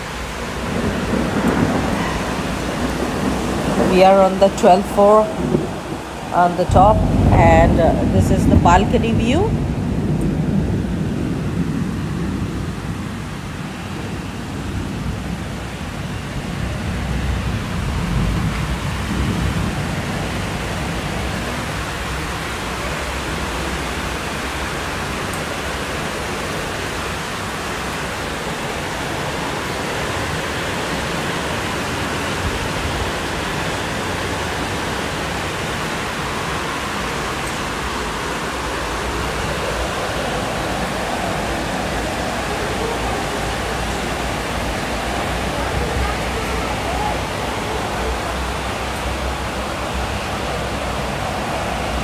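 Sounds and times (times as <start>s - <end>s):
heavy rain pouring: 0.0s - 52.0s
low rumble: 5.3s - 13.2s.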